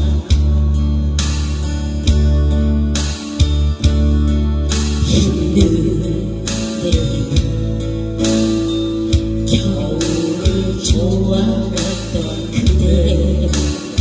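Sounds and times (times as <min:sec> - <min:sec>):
acoustic guitar: 0:00.0 - 0:14.0
steady beat: 0:00.0 - 0:14.0
woman singing a ballad: 0:05.0 - 0:14.0.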